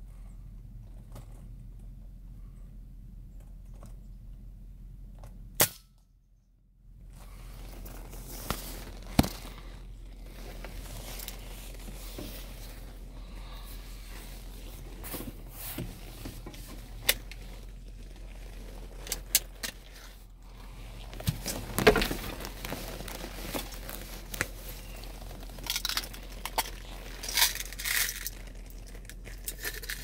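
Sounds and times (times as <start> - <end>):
handling rustling: 7.1 - 30.0.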